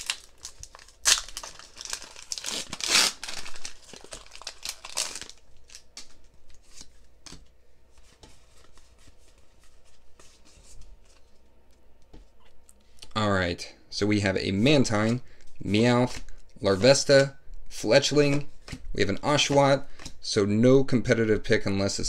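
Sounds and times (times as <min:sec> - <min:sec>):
foil wrapper tearing and crinkling: 0:00.0 - 0:05.9.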